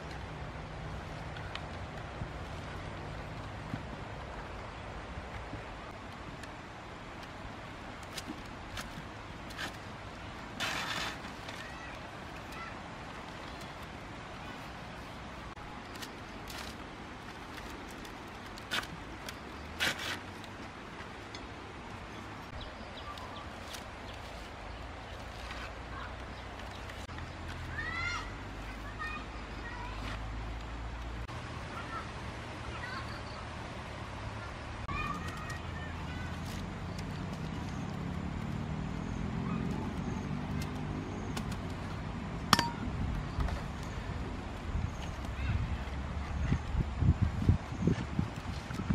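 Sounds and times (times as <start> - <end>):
rustling of leafy vine stems: 0.0 - 31.9
steady outdoor hiss: 0.0 - 48.9.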